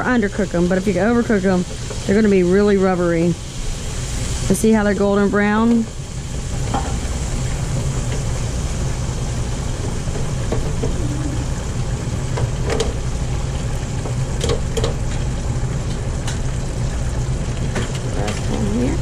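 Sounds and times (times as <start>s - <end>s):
shrimp frying in deep fryer: 0.0s - 19.0s
low hum: 10.8s - 12.3s.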